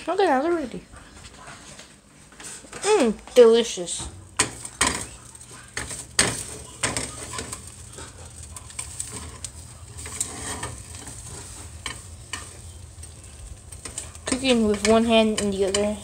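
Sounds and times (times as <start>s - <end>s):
eggs sizzling in a frying pan: 2.4s - 16.0s
plastic spatula scraping a pan: 4.9s - 12.8s.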